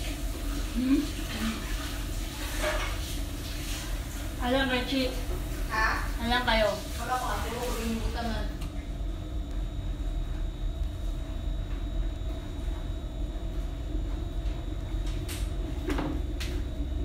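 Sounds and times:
machinery rumble and hum: 0.0 - 17.0.

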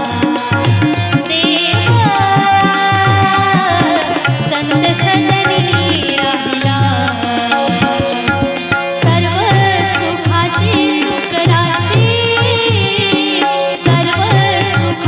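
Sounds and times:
hand drum beats: 0.0 - 15.0.

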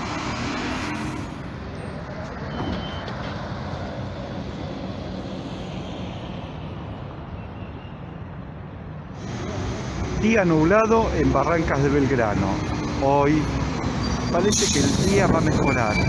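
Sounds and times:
road noise of passing vehicles: 0.0 - 16.0
short high-pitched beep: 2.5 - 3.1.

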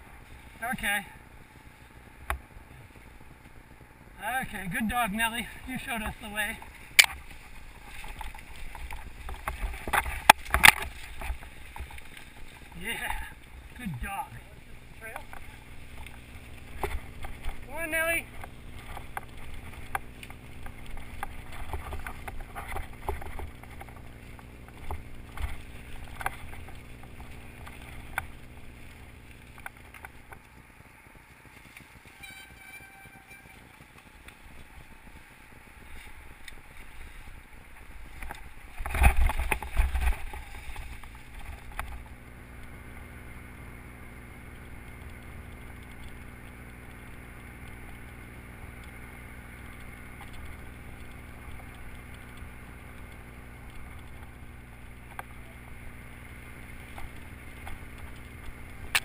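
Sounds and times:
steady low rumble: 0.0 - 59.0
bike rattling over bumps: 4.6 - 13.8, 14.4 - 42.2.

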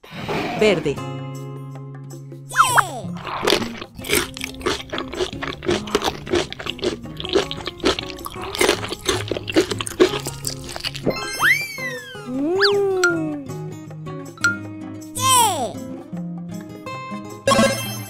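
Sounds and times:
cheerful background music: 0.6 - 18.0
cartoon candy crunching: 2.5 - 11.8.

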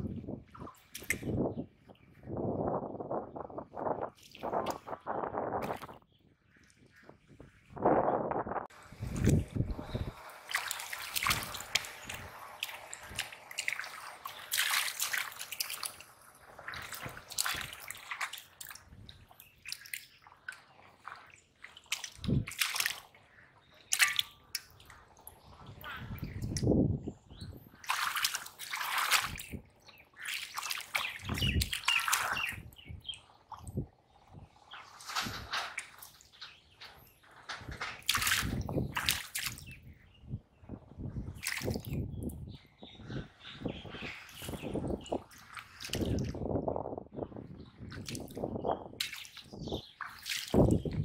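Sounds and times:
feet wading through water: 8.7 - 26.6, 27.7 - 35.2, 38.0 - 39.8, 41.3 - 42.0, 43.9 - 46.5, 47.7 - 51.0
hands splashing in water: 10.4 - 18.9, 19.6 - 23.2, 23.8 - 24.8, 27.8 - 29.6, 30.2 - 32.6, 38.0 - 39.7, 41.4 - 42.0, 44.3 - 46.4, 49.0 - 51.0.

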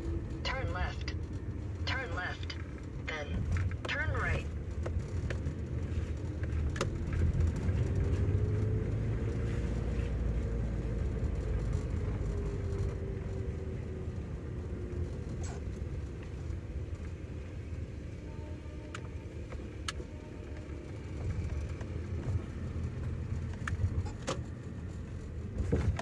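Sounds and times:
car engine and road rumble: 0.0 - 26.0.

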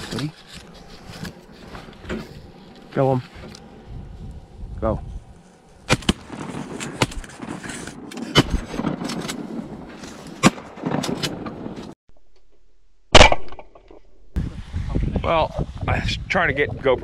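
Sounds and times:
rustling: 0.0 - 3.8
shotgun shots: 13.1 - 13.6.

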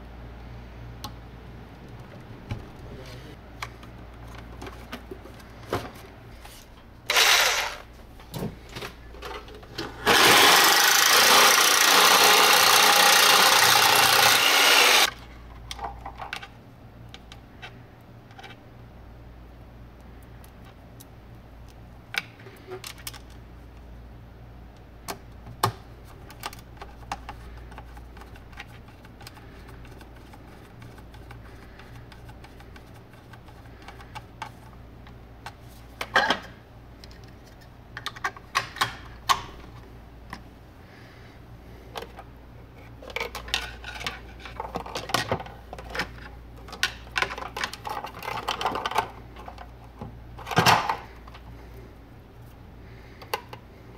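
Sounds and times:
steady low hum: 11.3 - 53.9.

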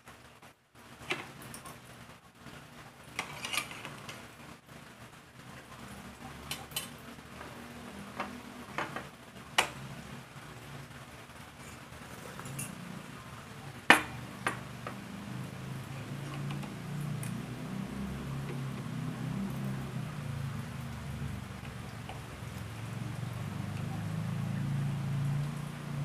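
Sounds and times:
cutlery scraping on plate: 3.2 - 4.0, 11.6 - 12.8.

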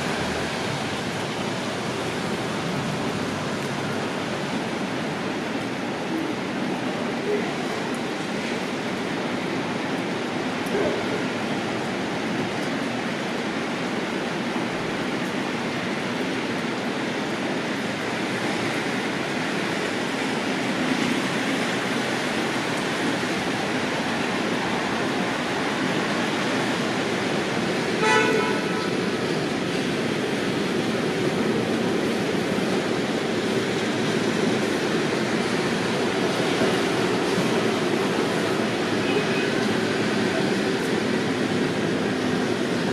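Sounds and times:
city traffic hum: 0.0 - 42.9
car horn toot: 28.0 - 28.9.

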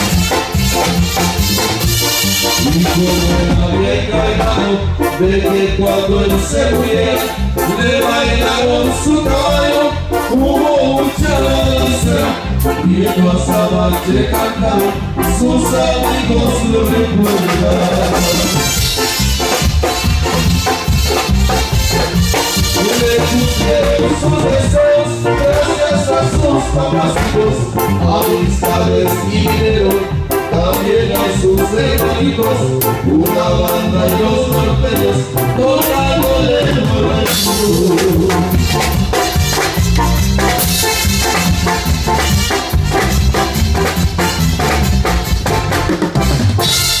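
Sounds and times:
steady drum beat: 0.0 - 4.7, 16.4 - 28.4, 36.6 - 47.0
deep bass: 0.0 - 47.0
live latin band music: 0.0 - 47.0.

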